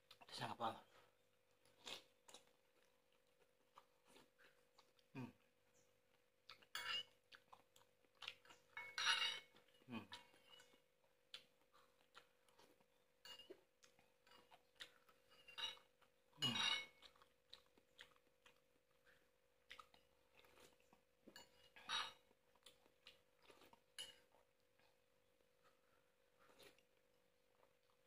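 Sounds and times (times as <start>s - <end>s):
soft chewing: 0.0s - 28.0s.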